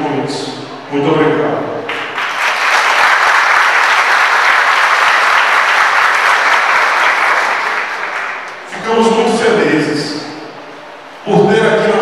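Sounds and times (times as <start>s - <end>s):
congregation applauding: 1.8s - 8.9s.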